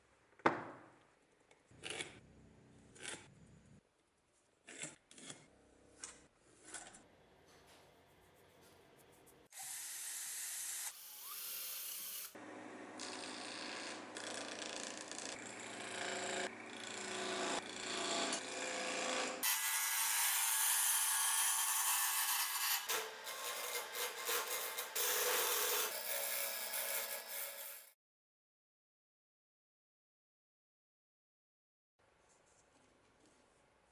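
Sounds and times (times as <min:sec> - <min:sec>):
chisel scraping wood: 0:04.6 - 0:07.0.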